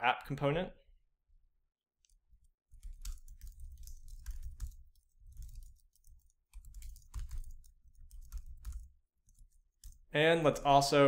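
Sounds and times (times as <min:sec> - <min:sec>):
computer keyboard typing: 0:02.1 - 0:10.1.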